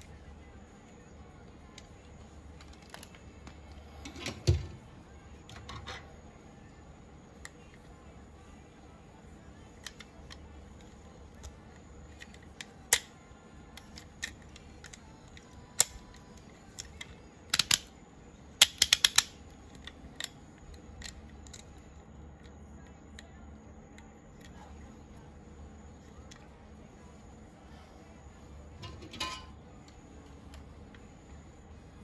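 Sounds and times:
plastic toy parts clicking: 9.8s - 17.9s, 18.6s - 21.8s.

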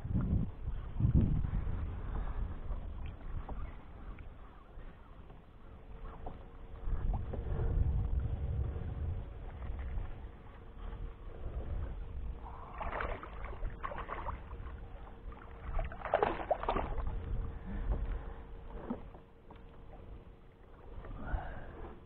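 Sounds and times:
microphone rubbing rumble: 0.0s - 22.0s.

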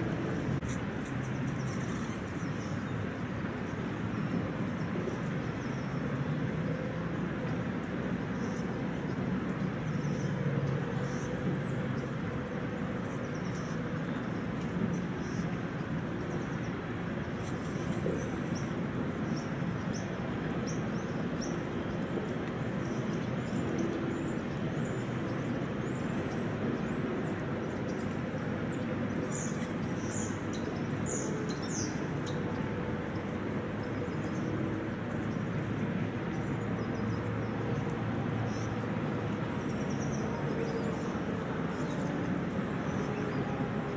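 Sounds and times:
outdoor background rumble: 0.0s - 43.9s
small birds chirping: 0.4s - 4.1s, 12.8s - 43.9s.

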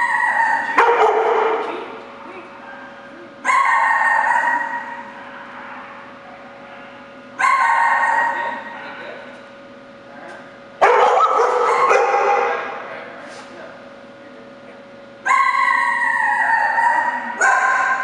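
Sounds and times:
dog barking with echo: 0.0s - 1.8s, 2.7s - 6.0s, 6.8s - 8.8s, 10.8s - 12.7s, 15.3s - 18.0s.

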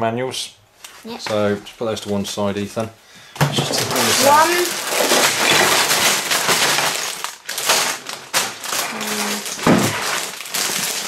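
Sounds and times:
plastic bags crinkling: 3.6s - 11.0s.

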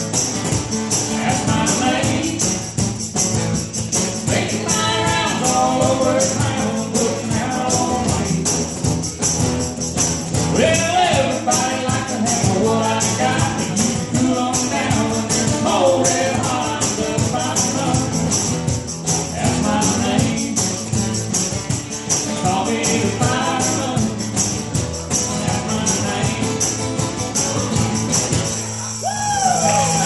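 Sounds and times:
jingling percussion beat: 0.0s - 30.0s
strummed acoustic guitar: 0.0s - 30.0s
person singing: 4.3s - 8.7s, 10.6s - 18.2s.

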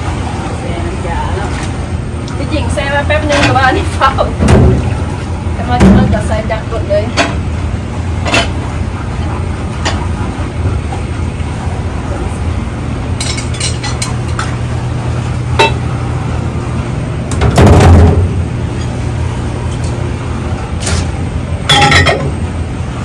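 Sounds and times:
low hum of kitchen machinery: 0.0s - 23.0s
dishes clinking: 3.2s - 3.8s, 8.2s - 8.6s, 13.2s - 14.6s, 15.5s - 15.9s, 21.7s - 22.4s
loud dish clatter: 8.2s - 8.6s, 15.6s - 15.8s, 21.7s - 22.4s.

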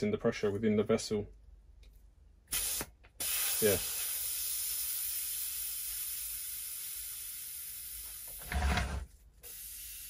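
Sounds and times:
air hissing from valve: 2.5s - 8.5s, 9.4s - 10.0s.

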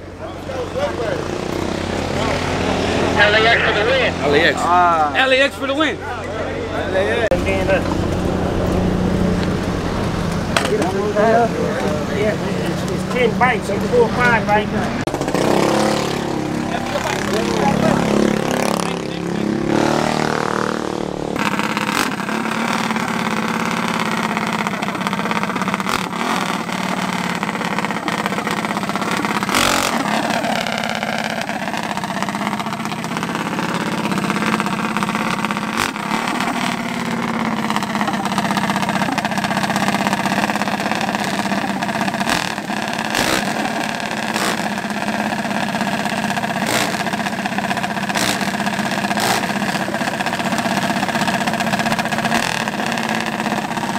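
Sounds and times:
mini bike engines revving: 0.0s - 53.9s.

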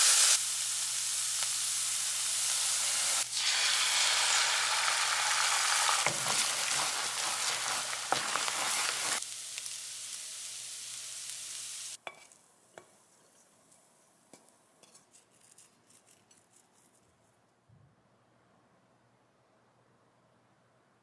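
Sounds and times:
food sizzling in a frying pan: 0.0s - 12.9s.

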